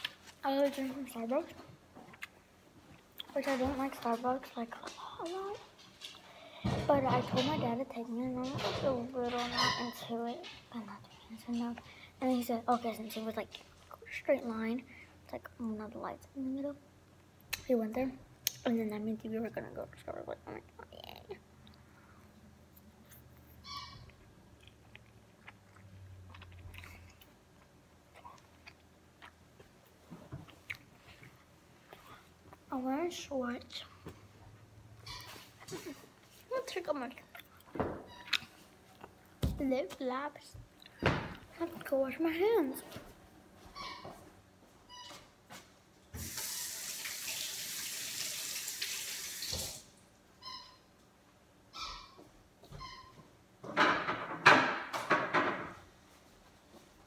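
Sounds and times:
mouth clicks and smacks: 2.1s - 2.4s, 18.4s - 18.7s
person chewing food: 2.1s - 3.3s, 22.8s - 32.6s
water running into a sink: 46.2s - 49.9s.

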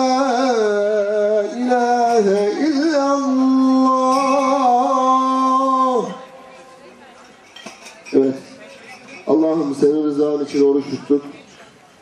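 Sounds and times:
man chanting into a microphone: 0.0s - 6.3s.

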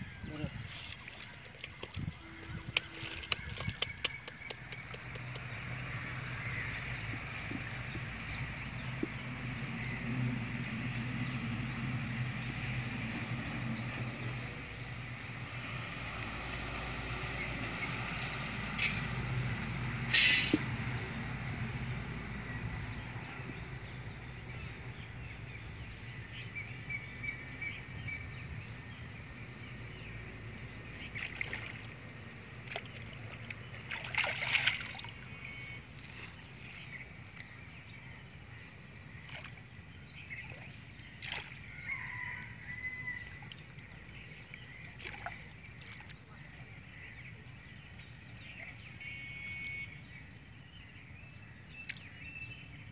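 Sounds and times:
shallow water sloshing and splashing: 0.4s - 9.9s, 30.7s - 38.2s, 39.1s - 41.7s, 42.4s - 47.2s.

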